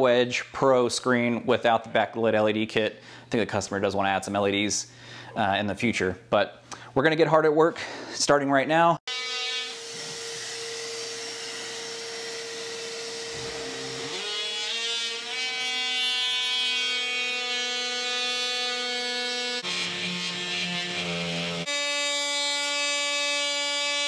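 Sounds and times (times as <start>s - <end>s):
power tool cutting drywall: 9.1s - 24.0s.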